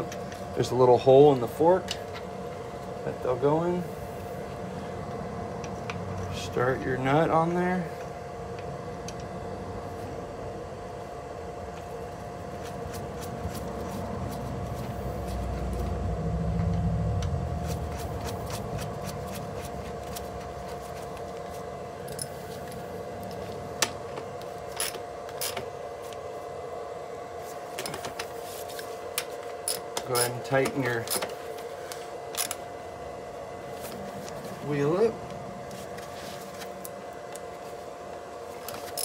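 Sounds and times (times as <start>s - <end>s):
steady background hum: 0.0s - 39.0s
low rumble: 14.6s - 18.8s.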